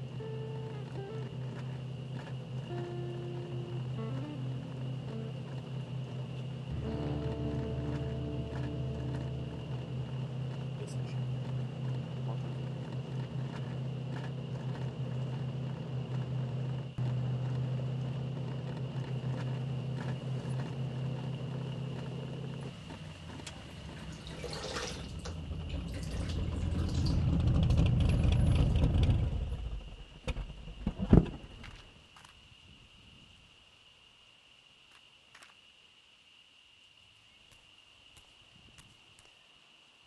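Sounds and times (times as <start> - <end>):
low rumble: 0.0 - 31.8
vehicle engines droning: 0.0 - 31.9
water splashing in a basin: 23.9 - 27.2.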